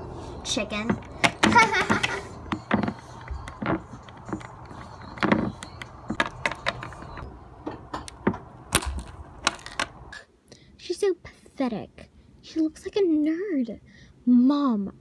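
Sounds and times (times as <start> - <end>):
plastic figurines clicking: 0.9 - 7.2.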